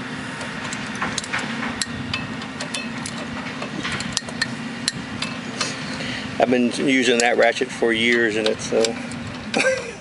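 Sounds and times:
steady low hum: 0.0s - 10.0s
screwdriver clicking on metal: 7.1s - 9.6s.

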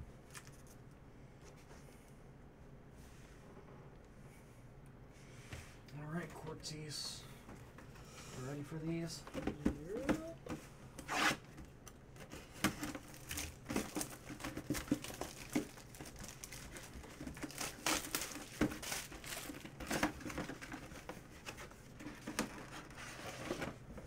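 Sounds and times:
shrink wrap tearing and crinkling: 12.8s - 20.7s.

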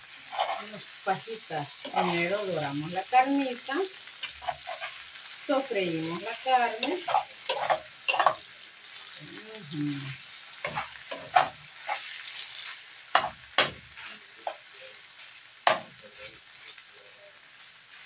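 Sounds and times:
beef sizzling in a frying pan: 0.0s - 18.0s
metal spoon scraping a pan: 0.1s - 1.0s, 1.7s - 2.6s, 4.0s - 9.2s, 10.6s - 16.8s.

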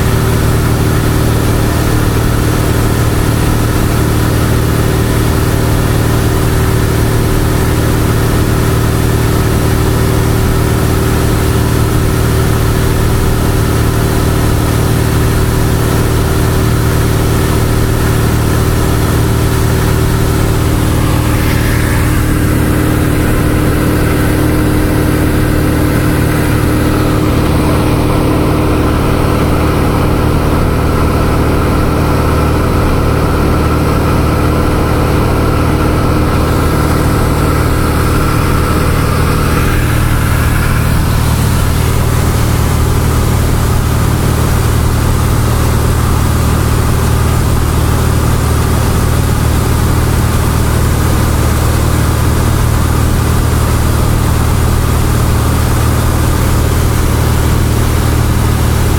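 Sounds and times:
aircraft engine and propeller droning: 0.0s - 58.9s
airflow hiss: 19.3s - 27.9s, 36.3s - 43.5s.

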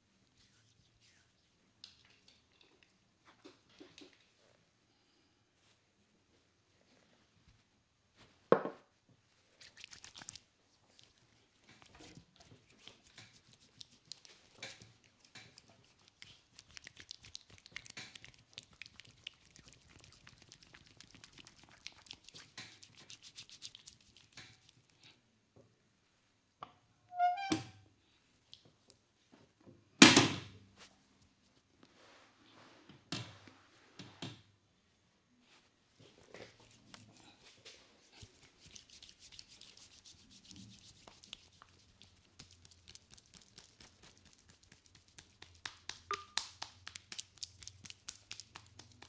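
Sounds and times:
hands rubbing cream into skin: 9.5s - 24.9s, 36.0s - 49.0s.

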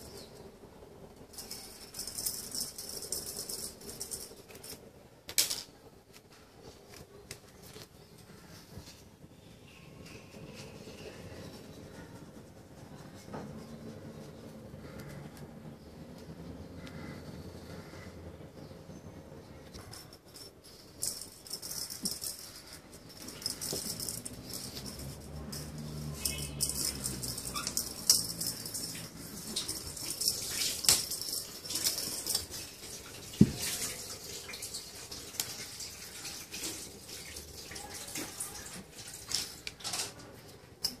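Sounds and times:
ball toy rattling on tiled floor: 0.7s - 9.0s, 19.6s - 33.9s.

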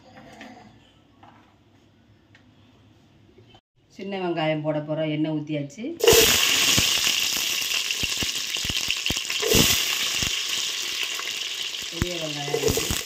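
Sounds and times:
shallots sizzling in hot oil: 6.0s - 13.0s.

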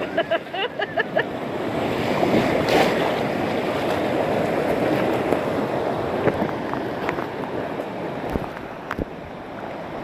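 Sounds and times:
white water rushing: 0.0s - 10.0s
water splash: 1.9s - 5.4s.

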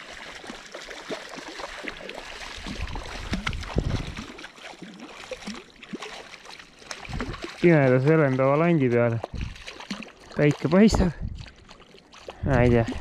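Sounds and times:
fish splashing in water: 0.0s - 13.0s.

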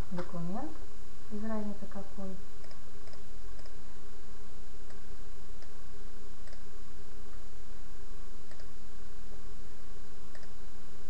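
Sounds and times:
low electrical hum: 0.0s - 11.0s
faint ticks: 10.3s - 10.6s.

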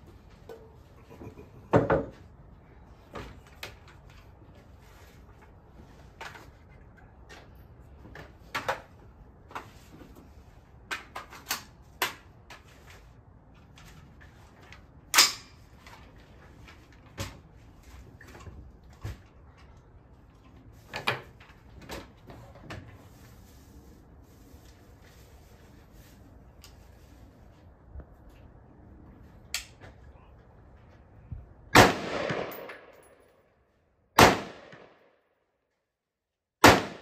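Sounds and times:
knocks on wooden bench: 1.7s - 2.2s.

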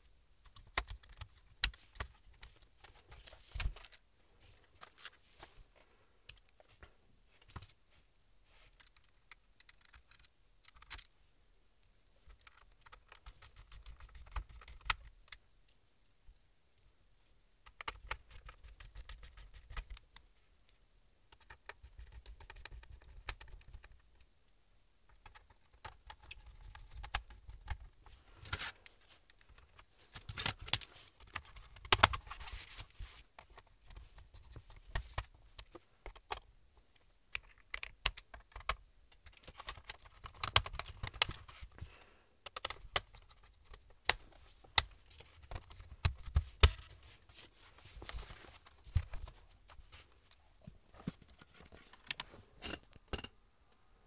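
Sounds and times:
plastic clicks and snaps: 42.4s - 46.9s.

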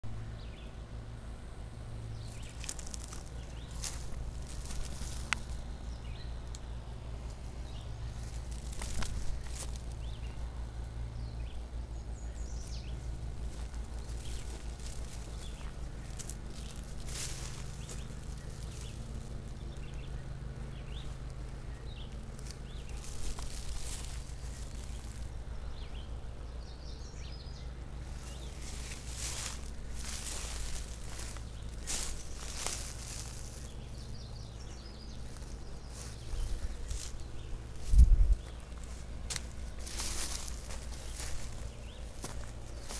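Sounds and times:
steady low rumble: 0.1s - 42.9s
footsteps through tall grass: 2.2s - 6.2s, 7.1s - 11.3s, 12.0s - 25.8s, 28.0s - 42.9s.

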